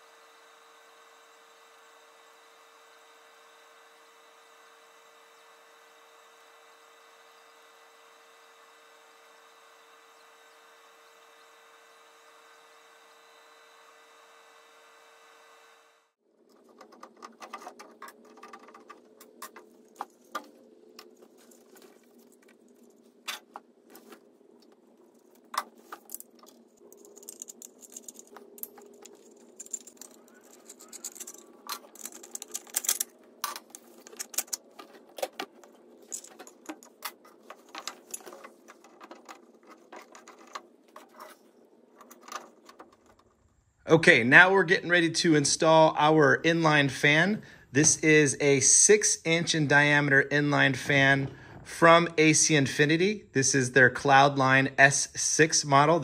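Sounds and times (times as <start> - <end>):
machine hum: 0.0 - 53.4
metal parts clicking and clinking: 25.0 - 41.4.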